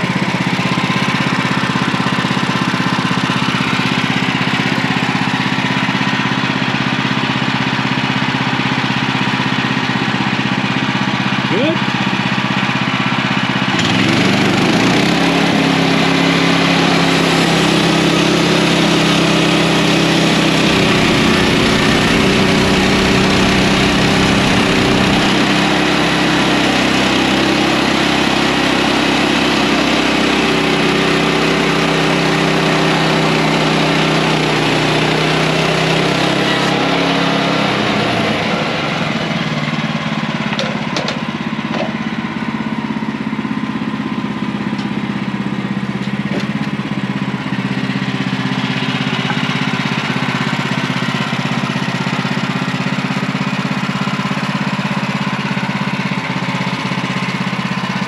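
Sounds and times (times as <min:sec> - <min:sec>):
sawmill gas engine running: 0:00.0 - 0:58.0
wood knocks: 0:40.6 - 0:42.0.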